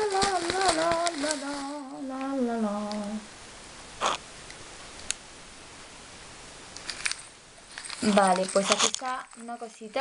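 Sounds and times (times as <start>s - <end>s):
faint steady hiss: 0.0s - 10.0s
woman's held voice: 8.0s - 10.0s.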